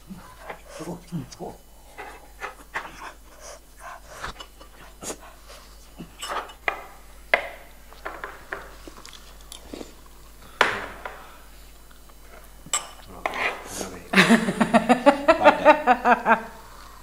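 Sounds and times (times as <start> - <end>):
chewing food: 8.7 - 10.4.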